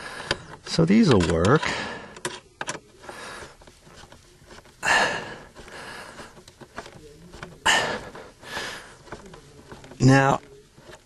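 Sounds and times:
heavy breaths: 0.0 - 0.7, 1.6 - 2.4, 3.0 - 9.9
screwdriver turning screw: 0.2 - 4.8.

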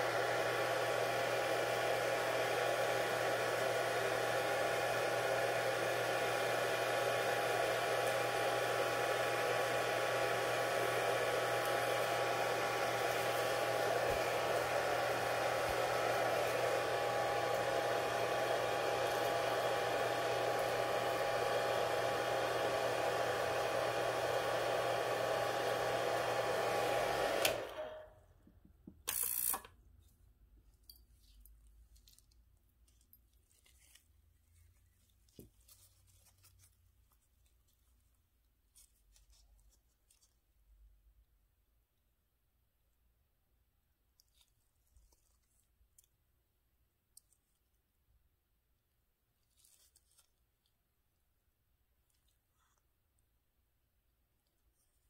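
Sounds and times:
electric appliance humming and rushing: 0.0 - 28.1.

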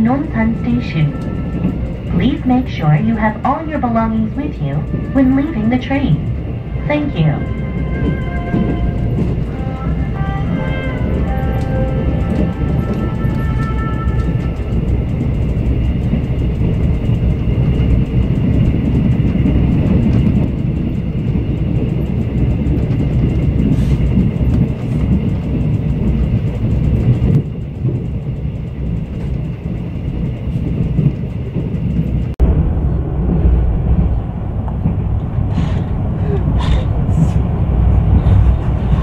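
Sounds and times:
train wheels rumbling on track: 0.0 - 39.0.

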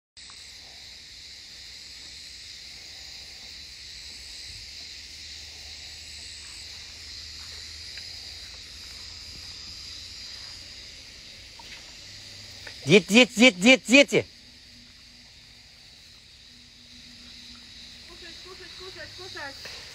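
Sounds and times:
insects buzzing: 0.2 - 19.9.

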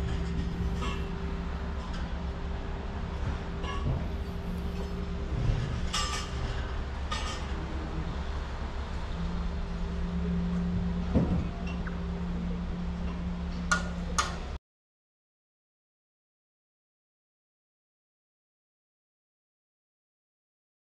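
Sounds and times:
low mechanical hum: 0.0 - 14.6.

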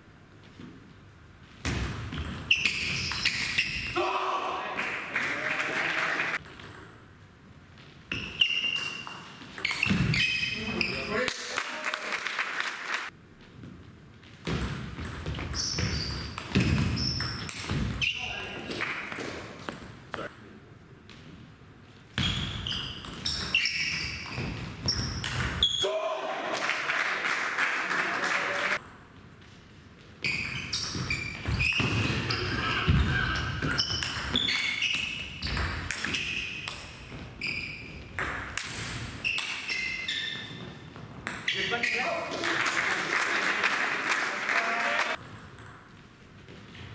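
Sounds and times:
shoes squeaking on hall floor: 0.4 - 4.1, 7.7 - 11.3, 13.4 - 20.3, 21.1 - 25.9, 29.2 - 42.4.

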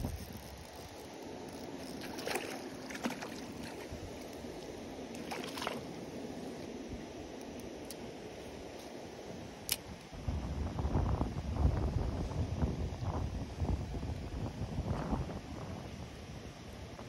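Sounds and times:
steady background hiss: 0.0 - 17.0
water splashing: 1.8 - 4.3, 5.2 - 6.0.

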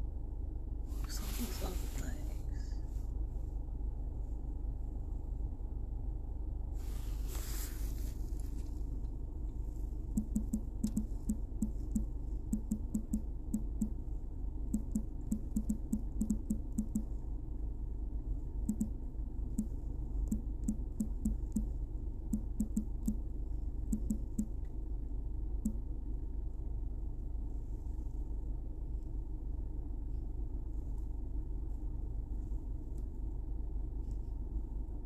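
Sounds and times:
low steady hum: 0.0 - 35.0
fingertips tapping touchscreen: 10.2 - 14.0, 14.7 - 17.1, 18.7 - 19.0, 19.6 - 21.7, 22.3 - 23.2, 23.9 - 24.5.

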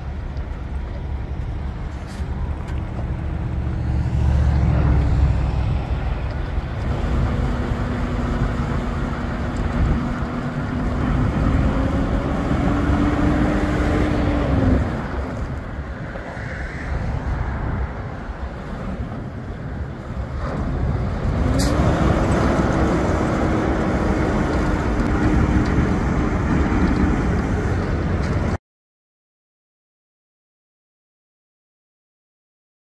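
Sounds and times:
low rumble: 0.0 - 28.6
truck diesel engine revving: 2.1 - 15.5, 20.3 - 28.6.

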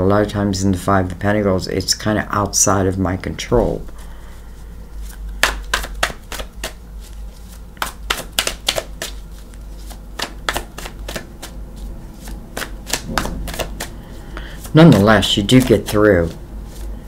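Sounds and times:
cards being shuffled: 4.9 - 17.0.

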